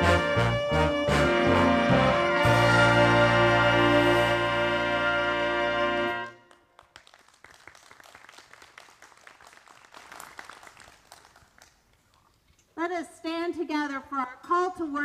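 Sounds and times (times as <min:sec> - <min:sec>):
jazz orchestra brass chord: 0:00.0 - 0:06.4.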